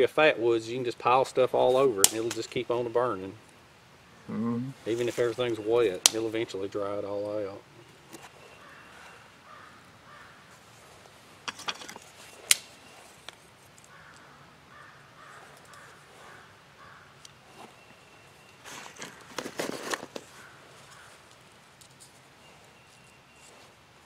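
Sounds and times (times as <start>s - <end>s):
sharp snap: 2.0s - 2.4s
crows cawing: 8.5s - 10.6s, 13.9s - 17.2s, 20.3s - 21.4s
knocks and crackles: 11.4s - 13.9s, 18.7s - 21.0s.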